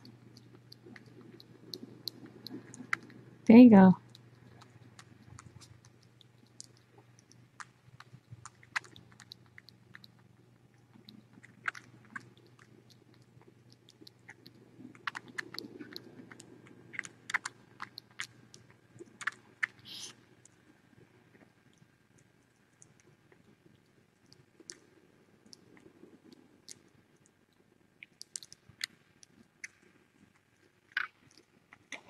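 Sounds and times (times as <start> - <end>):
kitten suckling wet clicks: 0.0 - 3.4, 4.0 - 20.6, 28.0 - 32.0.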